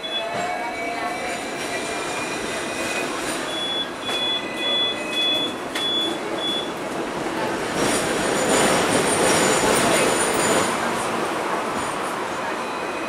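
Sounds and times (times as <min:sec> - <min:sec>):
electric tram rolling on track: 0:00.0 - 0:13.0
short high beeps: 0:02.8 - 0:06.7.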